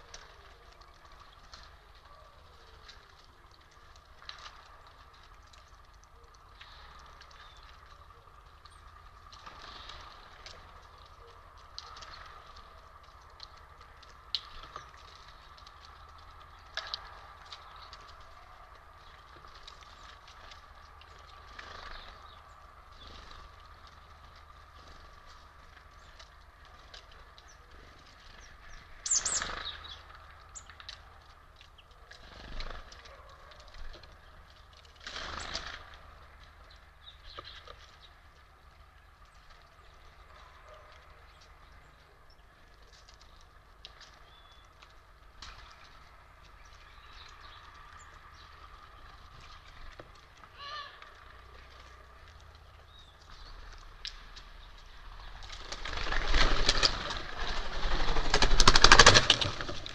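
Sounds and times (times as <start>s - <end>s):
bird wingbeats: 0.0s - 36.2s, 42.7s - 59.9s
high bird chirps and ticks: 0.0s - 56.8s
bird call: 29.0s - 30.0s, 50.5s - 51.3s.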